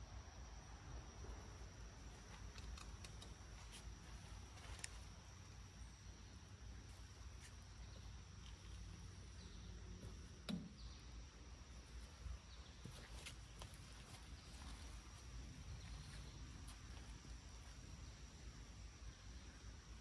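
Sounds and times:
small clicks: 2.3 - 3.8.

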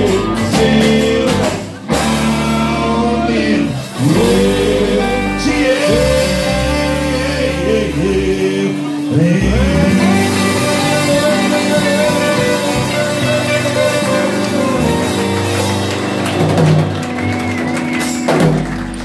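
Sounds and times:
men singing long held notes: 0.0 - 15.1
acoustic and electric guitars: 0.0 - 19.0
drums: 0.0 - 19.0.

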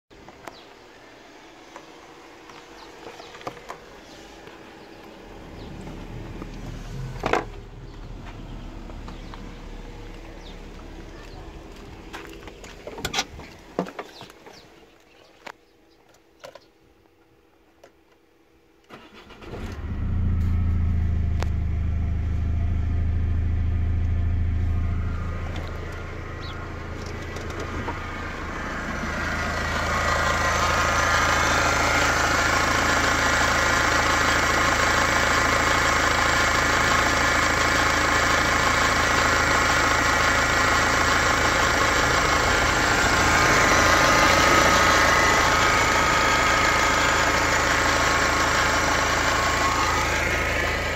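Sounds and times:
diesel engine idling: 2.1 - 12.9, 18.9 - 50.9
diesel engine cranking and starting: 4.8 - 13.4, 18.8 - 50.9.

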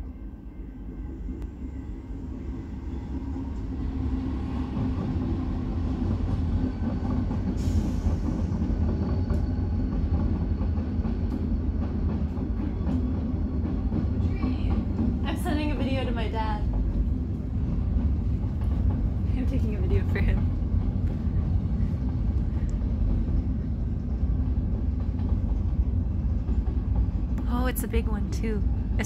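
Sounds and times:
diesel locomotives rumbling past: 0.0 - 29.0.

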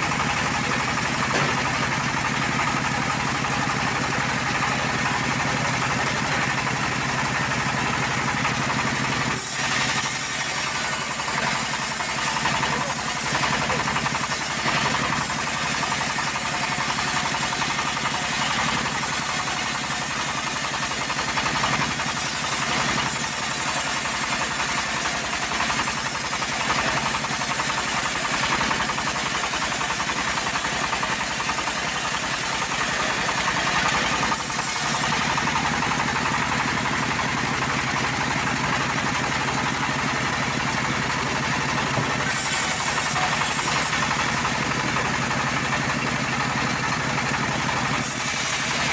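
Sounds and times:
bandsaw blade ripping through log: 42.2 - 44.0, 48.0 - 48.9.

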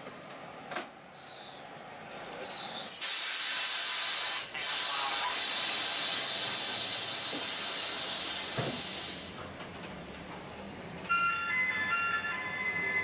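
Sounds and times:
air brake hissing: 2.4 - 9.3.

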